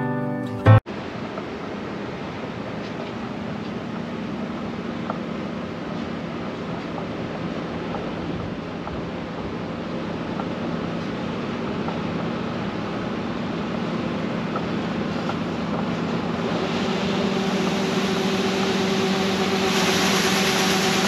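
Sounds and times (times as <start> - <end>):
combine harvester hum: 1.0 - 21.0
broad hiss: 14.7 - 21.0.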